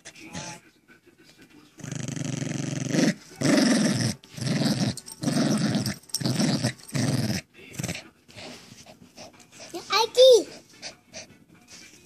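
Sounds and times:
small dog growling: 0:01.8 - 0:08.1.

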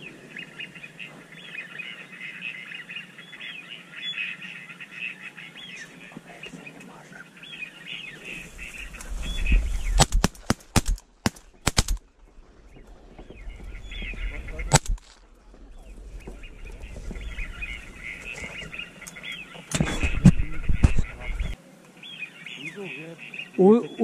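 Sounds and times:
rapid shotgun shots: 0:10.0 - 0:12.0.

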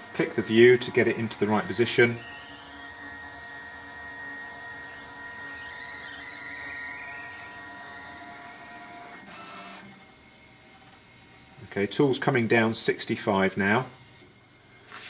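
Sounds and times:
stepper motors whining: 0:00.0 - 0:14.6.

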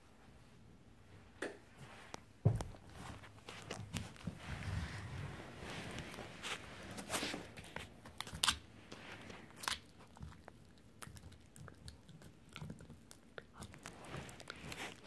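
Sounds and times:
dog gnawing a bone: 0:03.4 - 0:15.0.

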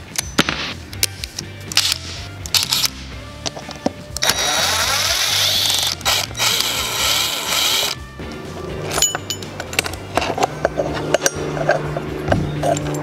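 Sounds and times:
cordless driver motor whirring: 0:04.2 - 0:08.0.

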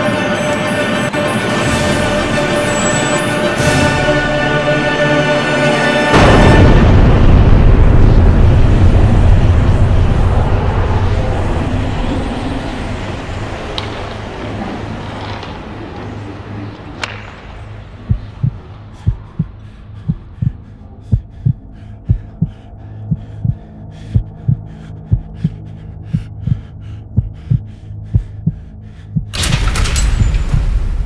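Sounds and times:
noisy rumble: 0:06.1 - 0:31.0
steady low hum: 0:06.2 - 0:29.4
paired low heartbeat thumps: 0:18.0 - 0:29.4.

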